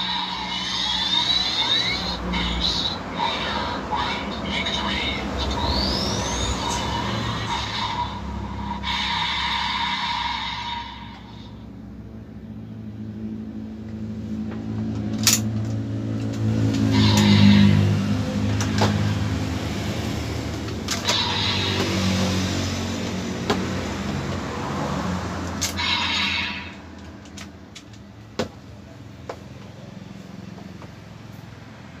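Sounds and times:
synthesized motorcycle engine revving: 0:00.0 - 0:13.8, 0:15.8 - 0:27.0.

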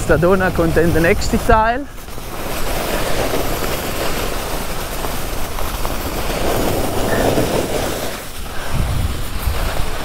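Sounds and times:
skis scraping over snow: 0:00.0 - 0:10.0
wind on microphone: 0:06.0 - 0:10.0.

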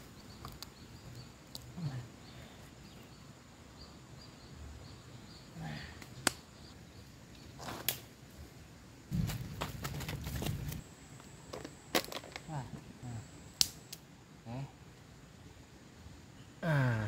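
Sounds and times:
hands scraping dry soil: 0:09.1 - 0:10.8.

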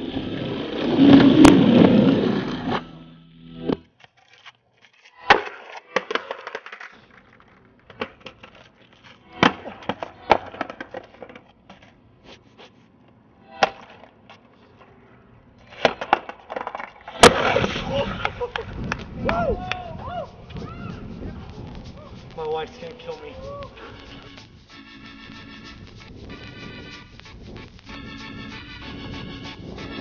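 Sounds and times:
skateboard deck cracking on asphalt: 0:00.0 - 0:02.8, 0:03.8 - 0:11.9, 0:15.7 - 0:19.4
skateboard wheels rolling: 0:00.0 - 0:03.0, 0:05.3 - 0:12.2, 0:13.1 - 0:30.0.

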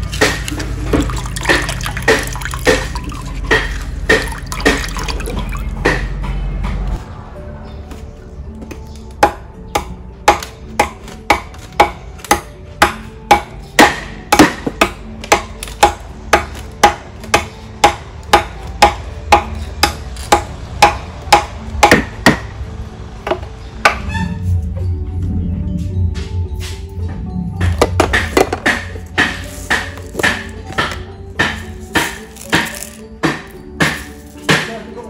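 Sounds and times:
machete chopping bamboo: 0:00.0 - 0:05.2, 0:05.8 - 0:06.2, 0:08.7 - 0:22.5, 0:27.6 - 0:34.9
faint background music: 0:00.0 - 0:35.0.

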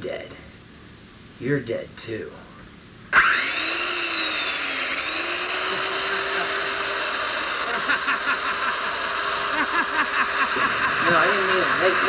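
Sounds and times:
power tool motor whine: 0:03.1 - 0:12.0.

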